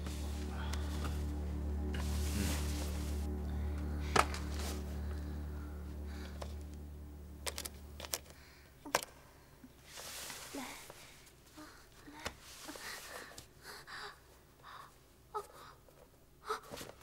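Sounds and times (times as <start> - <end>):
low background music: 0.0 - 9.6.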